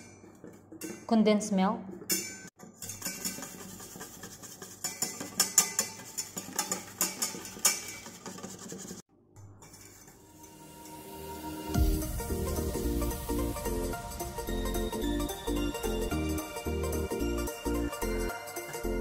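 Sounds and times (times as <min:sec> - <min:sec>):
whisk clinking in metal bowl: 0:02.1 - 0:09.0.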